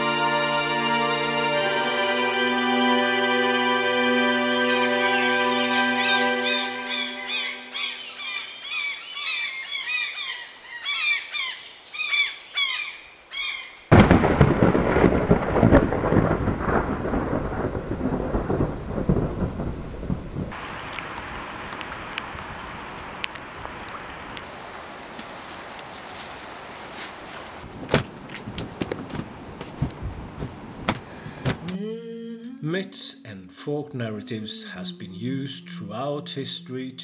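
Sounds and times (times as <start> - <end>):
birds chirping: 4.4 - 13.9
thunderclap rumbling: 13.9 - 24.3, 27.6 - 31.7
steady hiss with ticks: 20.3 - 29.0.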